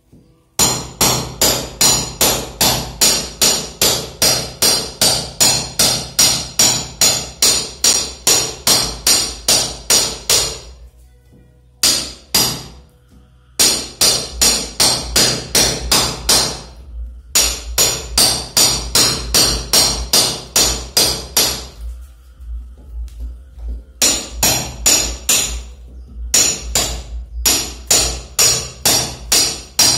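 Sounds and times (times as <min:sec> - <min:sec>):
hammer striking steel chisel: 0:00.6 - 0:10.8, 0:11.8 - 0:12.9, 0:13.6 - 0:21.8, 0:24.0 - 0:29.9.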